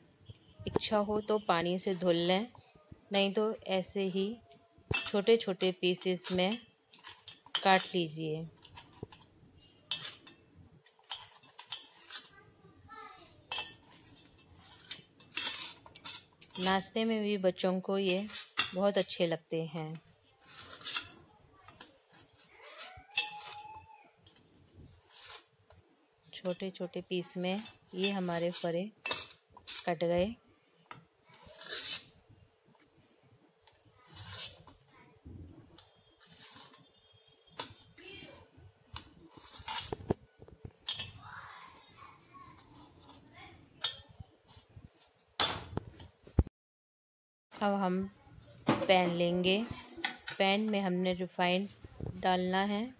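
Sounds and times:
knife scraping on metal plate: 6.0s - 8.0s, 8.6s - 12.4s, 13.5s - 17.0s, 18.0s - 19.2s, 20.4s - 21.2s, 22.1s - 24.4s, 25.1s - 25.5s, 27.6s - 30.0s, 31.3s - 32.1s, 34.1s - 34.8s, 35.8s - 37.9s, 39.0s - 40.2s, 40.8s - 41.2s.

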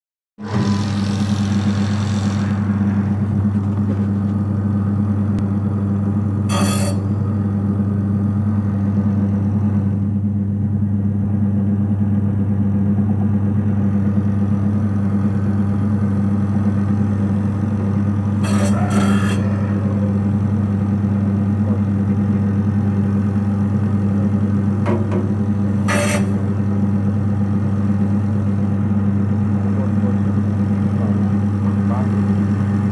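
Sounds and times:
brief noise: 0.4s - 4.5s
electric motor humming: 0.4s - 9.1s, 14.4s - 21.6s.

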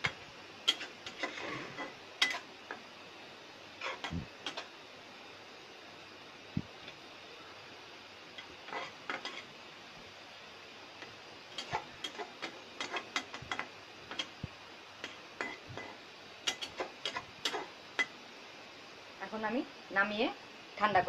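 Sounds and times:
spatula clinking in a metal wok: 0.7s - 2.4s, 15.4s - 18.1s.

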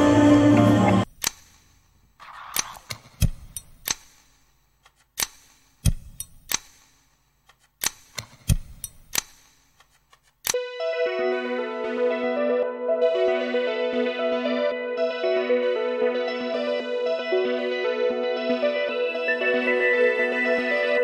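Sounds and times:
music: 0.0s - 1.1s, 10.6s - 21.0s
sharp clicks and knocks: 1.0s - 10.6s.

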